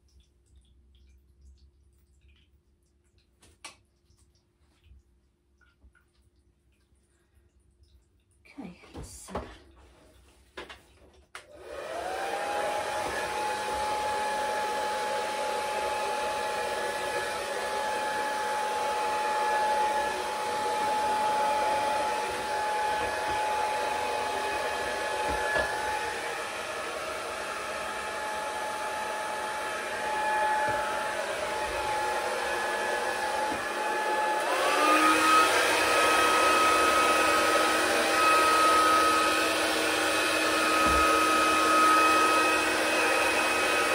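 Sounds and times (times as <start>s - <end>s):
hair dryer whining: 11.4s - 43.9s.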